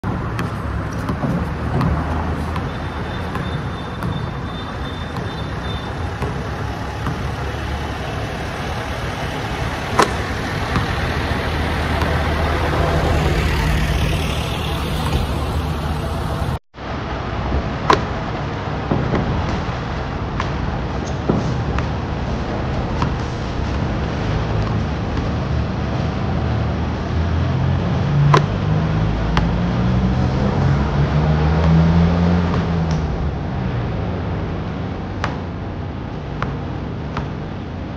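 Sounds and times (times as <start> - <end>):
basketball hitting hoop: 0.0 - 7.7, 9.8 - 12.4, 14.0 - 15.6
low engine hum: 0.0 - 37.9
traffic rumble: 0.0 - 37.9.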